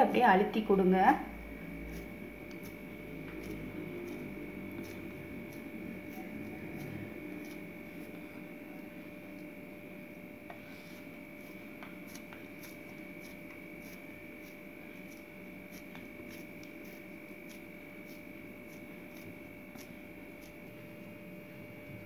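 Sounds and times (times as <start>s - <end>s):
faint steady hum: 0.0s - 22.0s
hands patting dough: 10.5s - 20.6s.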